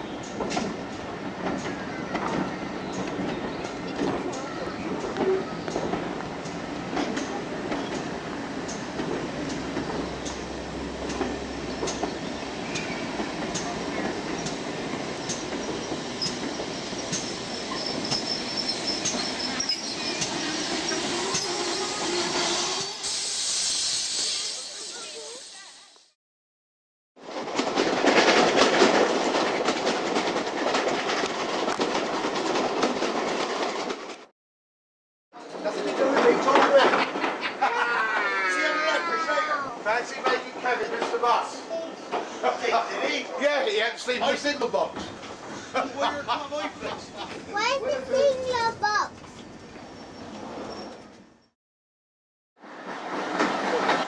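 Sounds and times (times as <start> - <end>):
train rumble: 0.0 - 23.2, 27.2 - 34.3, 35.4 - 51.5, 52.6 - 54.0
train wheels clicking over rail joints: 0.2 - 23.0, 27.2 - 34.3, 35.4 - 38.3, 43.8 - 51.4, 52.7 - 54.0
high wheel squeal: 15.6 - 25.2, 49.9 - 51.5.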